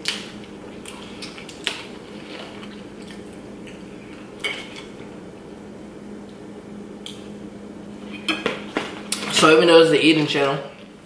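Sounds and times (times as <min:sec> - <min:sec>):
pizza being chewed: 0:00.0 - 0:05.2
steady low hum: 0:00.0 - 0:11.0.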